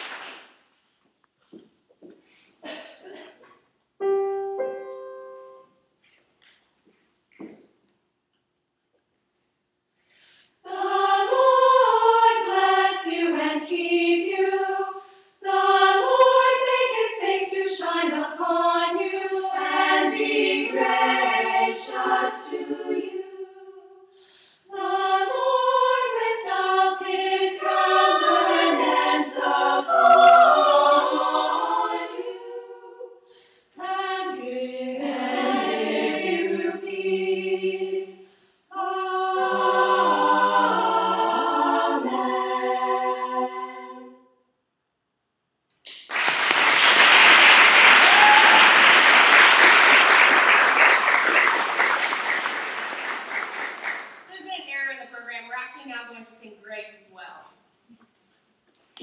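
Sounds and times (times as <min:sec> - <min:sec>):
women's choir singing a cappella: 0:10.6 - 0:44.3.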